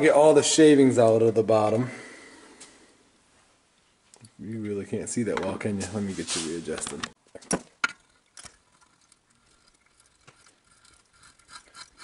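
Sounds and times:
faint ticks and rubbing: 7.9 - 12.0.

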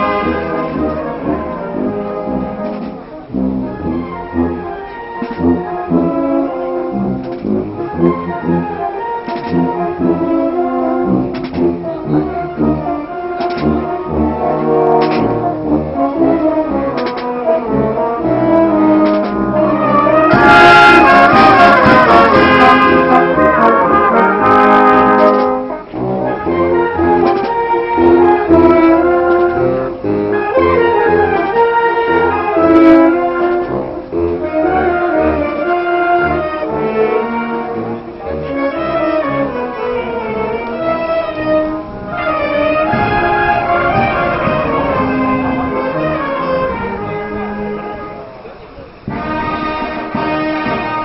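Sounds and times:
marching wind band playing: 0.0 - 51.0
sharp percussive hits: 42.1 - 47.5.

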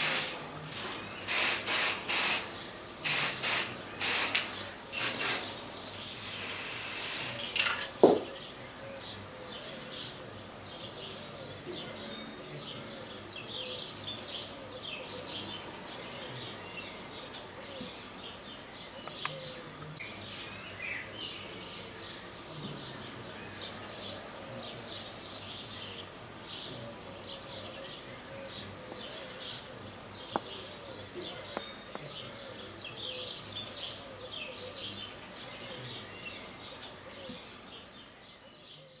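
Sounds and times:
small birds chirping: 0.0 - 39.0.

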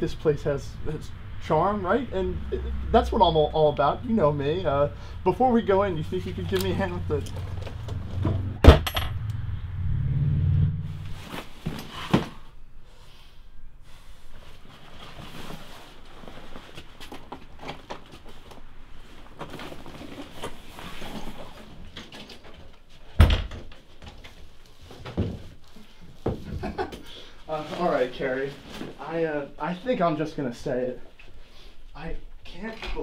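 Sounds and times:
low hum: 0.0 - 11.4.

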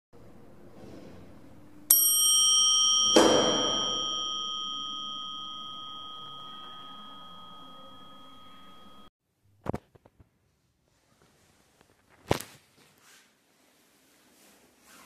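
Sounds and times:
elevator arrival bell ringing: 1.9 - 9.1.

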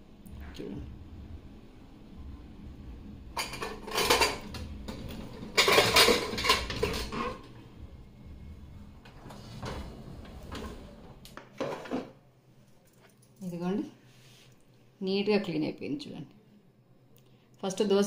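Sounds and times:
steel dishes clattering: 3.4 - 4.6, 5.3 - 7.5.

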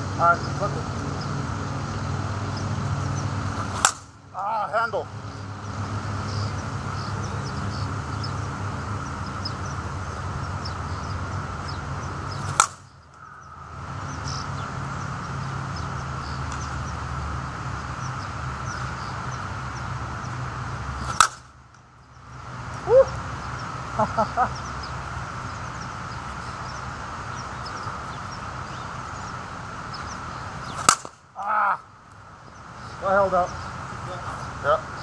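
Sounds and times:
background hum: 0.0 - 35.0
bat striking softball: 3.6 - 4.1, 12.4 - 12.9, 21.0 - 21.5, 30.8 - 31.3.

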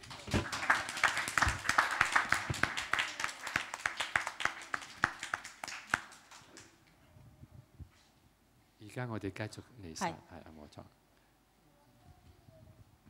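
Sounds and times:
crowd applauding: 0.0 - 6.7.

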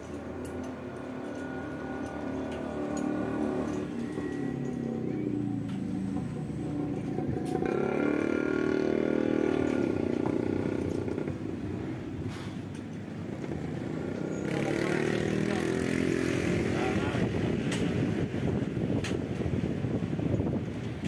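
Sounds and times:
engine revving: 1.1 - 12.0, 13.2 - 18.0.

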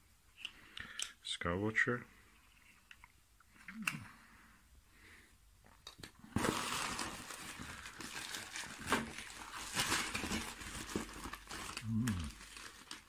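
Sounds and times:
plastic bag crinkling: 6.3 - 13.0.

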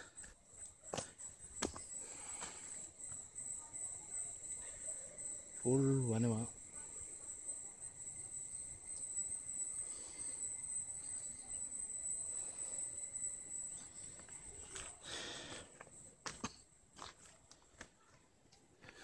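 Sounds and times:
insects droning: 0.0 - 18.1
footsteps on loose stones: 0.9 - 2.6, 14.2 - 18.0.

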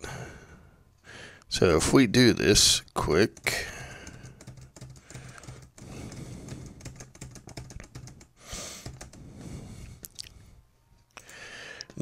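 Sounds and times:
computer mouse clicking rapidly: 3.1 - 9.3.

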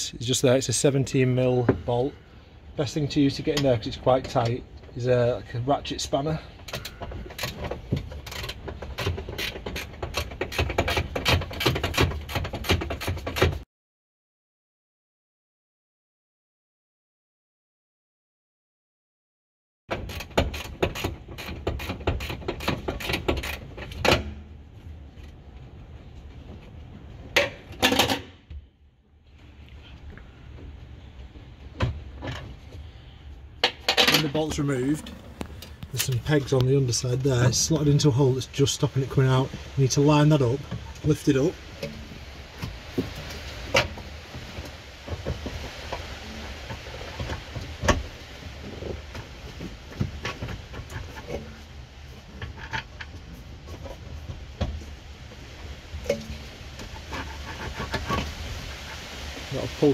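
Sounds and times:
plastic trim knocks and rubbing: 6.8 - 13.6.

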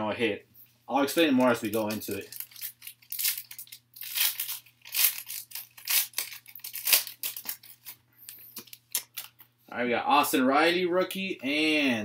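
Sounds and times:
foil wrapper tearing and crinkling: 1.4 - 8.0.

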